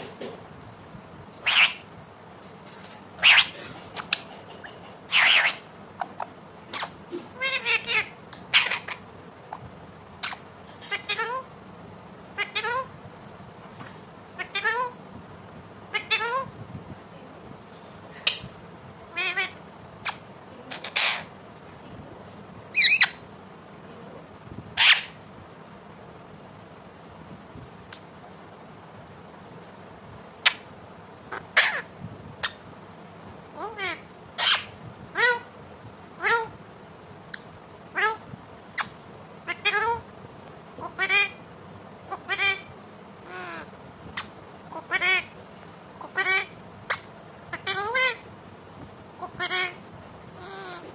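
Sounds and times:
parakeet squawking and chirping: 1.3s - 2.0s, 2.7s - 11.5s, 12.3s - 13.0s, 14.4s - 15.0s, 15.9s - 16.5s, 18.1s - 21.4s, 22.7s - 23.3s, 24.7s - 25.2s, 30.4s - 32.6s, 33.5s - 35.5s, 36.2s - 36.6s, 37.3s - 40.1s, 40.7s - 41.5s, 42.1s - 45.4s, 46.0s - 48.3s, 49.1s - 50.9s.

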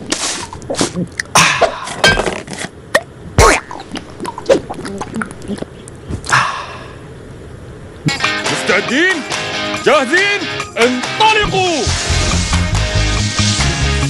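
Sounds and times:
person coughing and spluttering: 0.1s - 5.8s.

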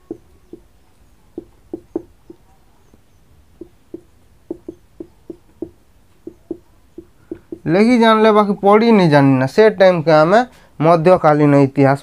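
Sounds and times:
marker tapping and squeaking: 0.0s - 7.8s.

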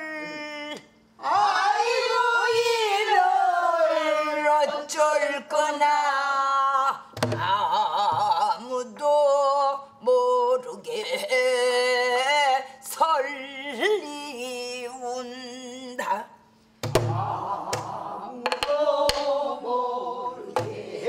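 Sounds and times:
woman singing with vibrato: 1.2s - 16.2s.

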